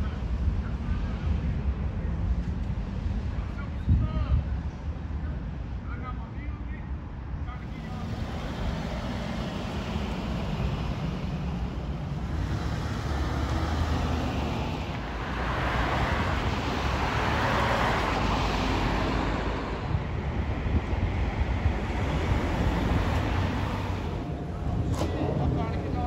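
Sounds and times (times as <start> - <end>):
steady low traffic rumble: 0.0 - 26.0
cars going by: 7.6 - 26.0.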